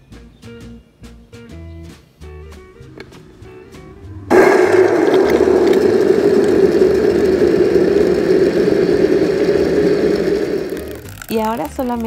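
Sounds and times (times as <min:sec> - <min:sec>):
blender running: 0:03.5 - 0:11.2.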